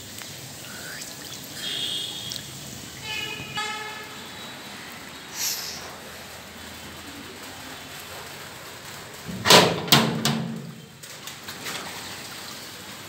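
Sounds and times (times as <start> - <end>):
steady low hiss: 0.0 - 11.5
door rattling in frame: 9.3 - 10.8.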